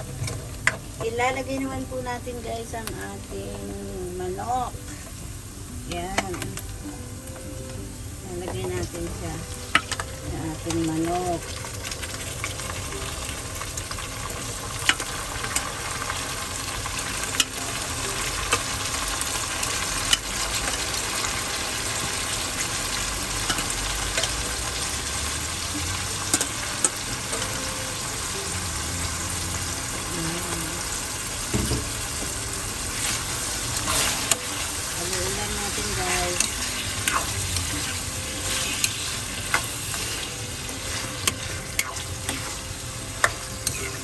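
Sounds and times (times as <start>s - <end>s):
chicken sizzling in hot oil: 0.0s - 44.0s.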